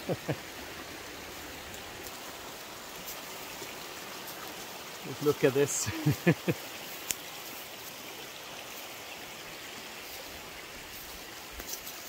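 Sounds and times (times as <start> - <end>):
river rushing: 0.0 - 12.0.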